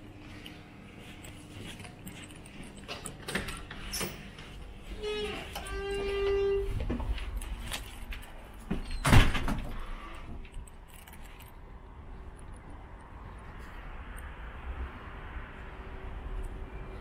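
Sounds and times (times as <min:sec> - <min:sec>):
door squeal: 0:05.0 - 0:06.9, 0:08.8 - 0:09.6
door banging shut: 0:08.8 - 0:09.8
city noise hiss: 0:11.6 - 0:17.0.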